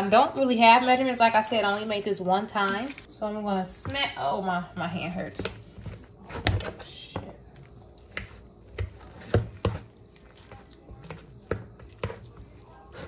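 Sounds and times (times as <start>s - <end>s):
mashing sweet potatoes in bowl: 4.9s - 13.0s.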